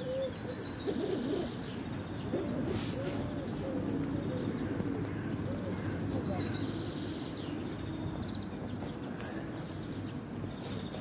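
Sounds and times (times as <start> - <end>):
birds cooing: 0.0 - 6.9.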